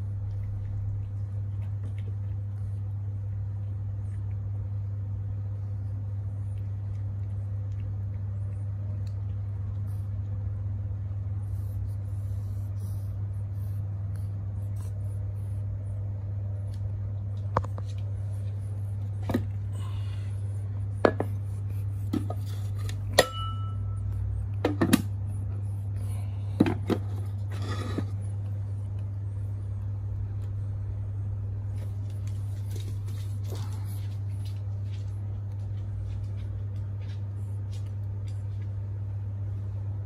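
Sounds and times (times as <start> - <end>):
cat eating wet food: 0.0 - 23.2
steady low hum: 0.0 - 40.0.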